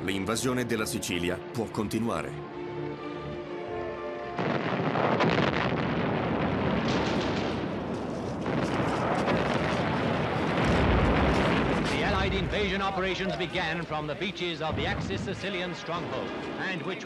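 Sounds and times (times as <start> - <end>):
explosions: 4.4 - 14.0, 14.6 - 17.0.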